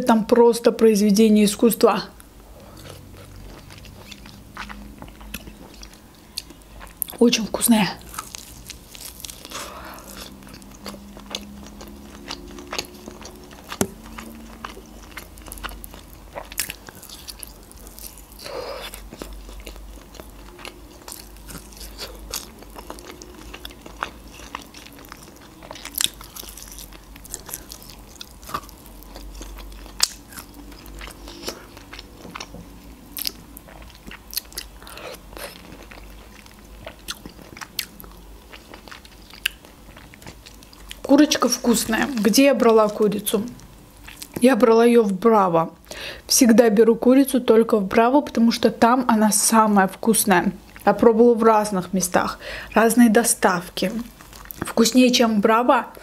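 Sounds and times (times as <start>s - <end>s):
biting and chewing meat: 2.6s - 44.5s, 54.1s - 54.8s.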